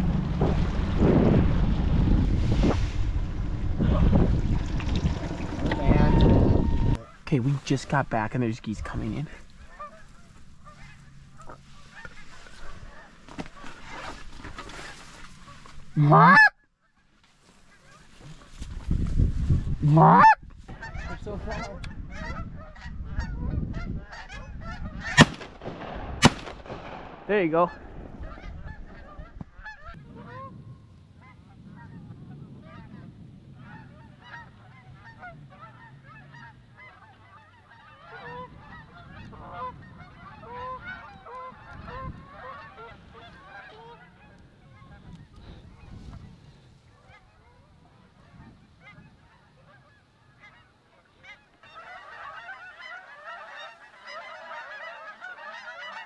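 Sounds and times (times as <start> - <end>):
geese honking: 3.8 - 8.0, 8.8 - 16.6, 19.8 - 25.4, 27.3 - 30.6, 31.2 - 46.2, 46.9 - 56.0.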